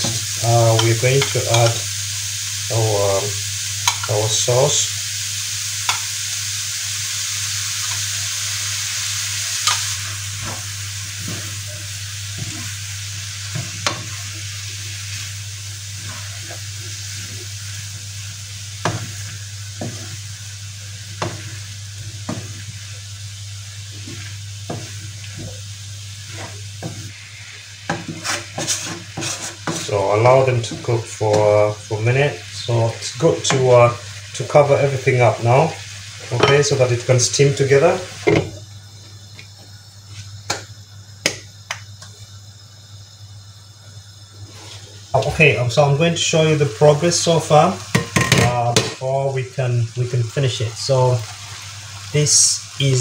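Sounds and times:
vegetables sizzling in a wok: 0.0 - 53.0
wooden spatula scraping a pan: 18.8 - 20.3, 26.2 - 31.5.

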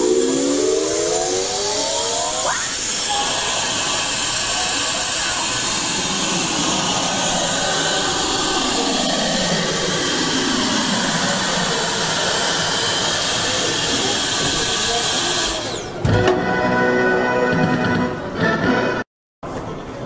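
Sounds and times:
low motor tone sweeping: 0.0 - 14.1
suction pump hissing whoosh: 0.0 - 16.0.

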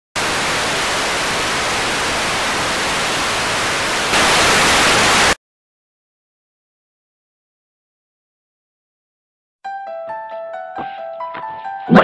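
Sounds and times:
tv static hiss: 0.2 - 5.4.

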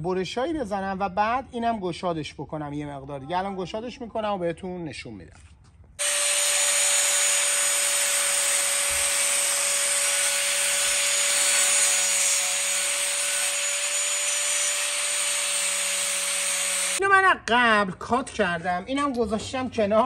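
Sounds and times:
angle grinder cutting sheet metal: 6.0 - 17.0.

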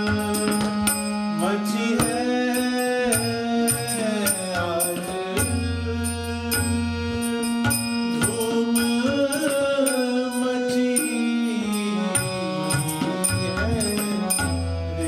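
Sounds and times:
tabla drum strokes: 0.0 - 1.2
harmonium chords: 0.0 - 15.0
man singing: 0.0 - 15.0.

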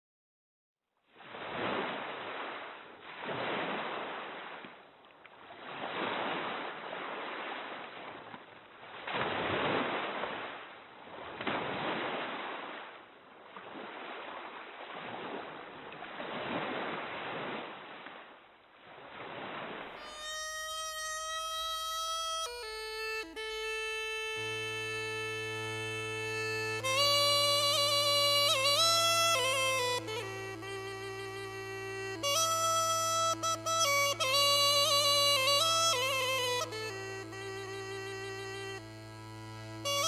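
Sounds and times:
sea waves washing in: 1.2 - 4.7, 5.5 - 20.0.

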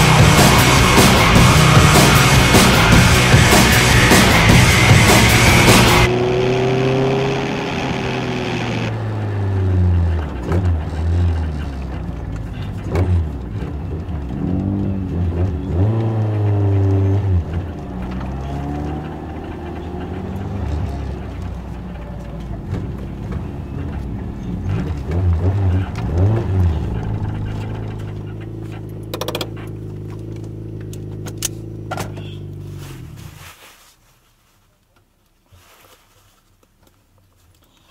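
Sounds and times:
car engine idling and revving: 0.0 - 33.5
sharp clicks: 27.0 - 31.6.

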